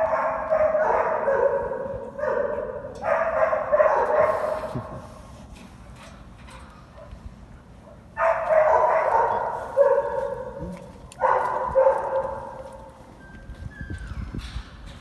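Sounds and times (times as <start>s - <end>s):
dogs barking: 0.0s - 4.9s, 7.8s - 13.0s.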